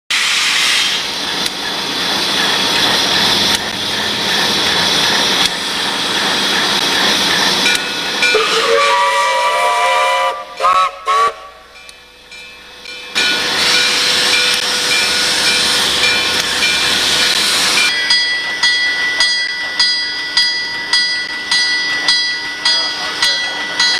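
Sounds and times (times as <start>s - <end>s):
locomotive hissing rush: 0.1s - 23.9s
locomotive horn: 8.3s - 11.7s.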